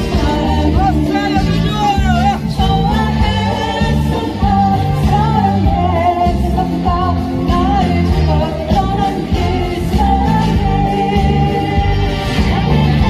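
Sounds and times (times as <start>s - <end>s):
instrumental accompaniment: 0.0s - 13.0s
woman singing into microphone: 0.0s - 13.0s.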